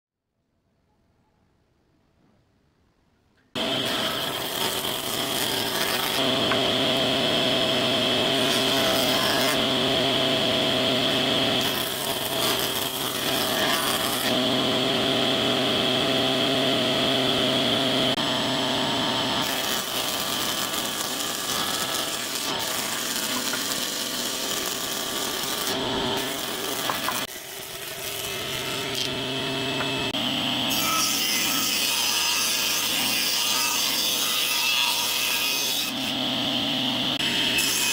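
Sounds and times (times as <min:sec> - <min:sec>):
jointer planer whining: 0:03.6 - 0:37.9.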